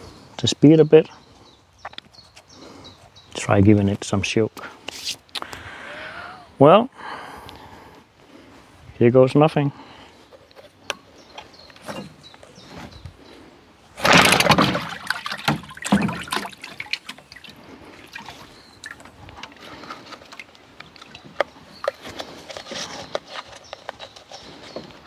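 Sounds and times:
propeller churning water: 0:14.0 - 0:21.5
water sloshing and trickling: 0:14.0 - 0:23.4.

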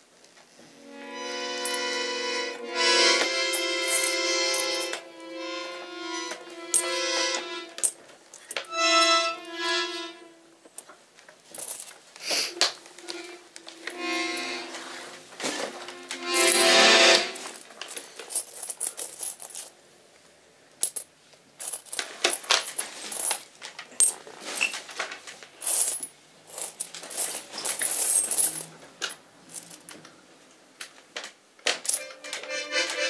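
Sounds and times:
metallic clinking and rattling: 0:11.5 - 0:12.0, 0:17.6 - 0:19.7, 0:25.6 - 0:30.0.

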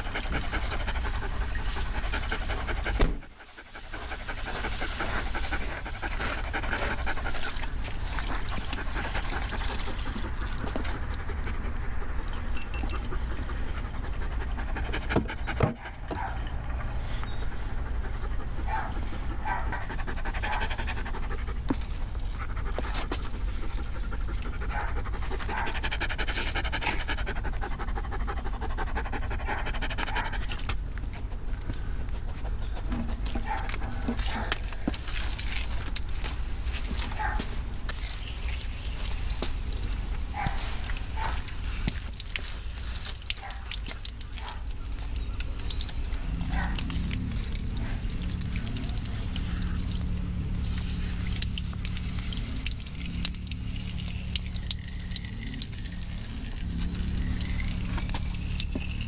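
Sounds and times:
dog panting: 0:00.0 - 0:35.0, 0:40.1 - 0:44.7, 0:46.0 - 0:49.8.

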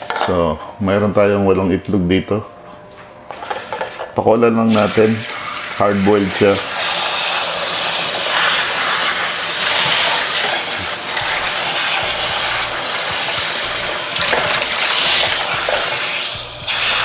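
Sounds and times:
water filling a cooking pot: 0:04.7 - 0:17.0.

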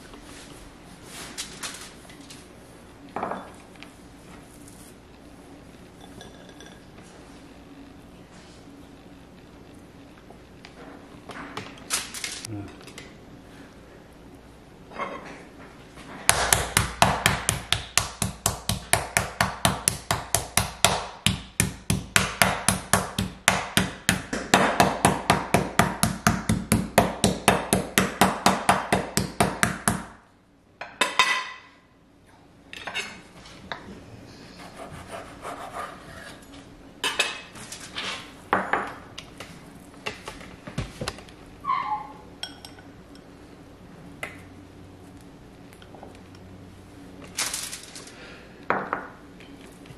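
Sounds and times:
dish clink: 0:06.0 - 0:06.9, 0:42.4 - 0:42.9
meat mallet pounding on board: 0:16.3 - 0:30.1.

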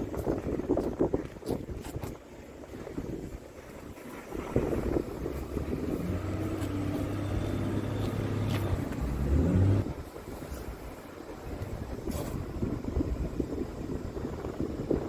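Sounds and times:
vehicle engine humming: 0:04.6 - 0:10.2.

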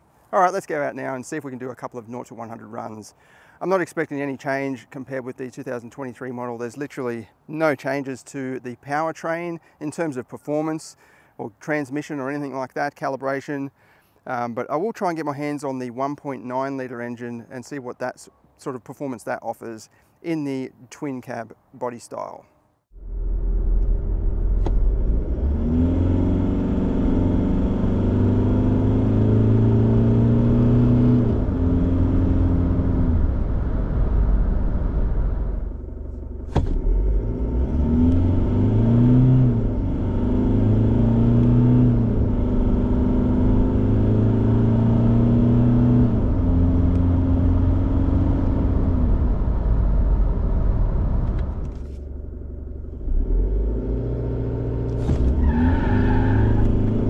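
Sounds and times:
diesel engine accelerating hard: 0:22.9 - 0:57.0
automatic gear shifts: 0:23.7 - 0:26.1, 0:51.2 - 0:55.7.

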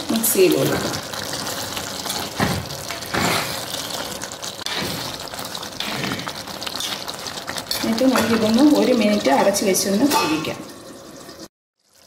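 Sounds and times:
background sizzle: 0:00.0 - 0:12.0.

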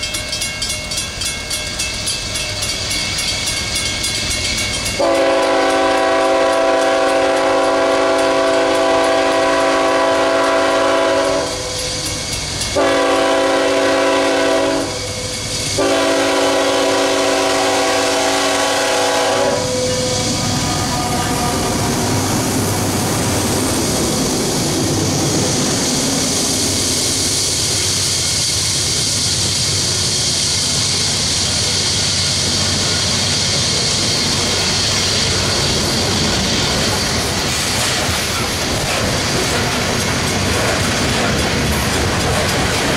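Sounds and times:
diesel locomotives working hard: 0:00.0 - 0:42.9
locomotive air horn blasts: 0:05.0 - 0:11.9, 0:12.8 - 0:22.1
hopper wheels clattering: 0:32.4 - 0:42.9.

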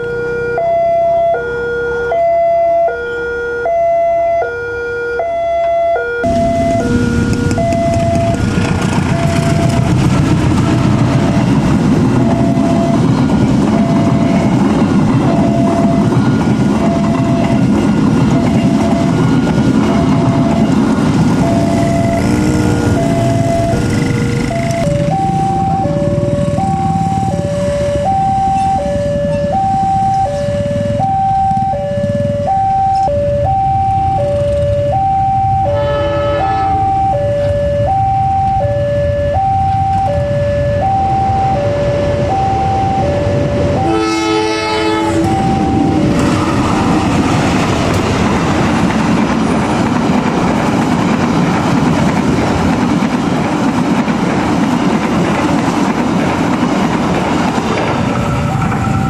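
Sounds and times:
two-tone crossing alarm: 0:00.0 - 0:48.9, 0:58.0 - 0:59.0
train passing: 0:06.2 - 0:59.0
train horn: 0:21.5 - 0:24.8, 0:35.6 - 0:37.7, 0:43.7 - 0:47.2.

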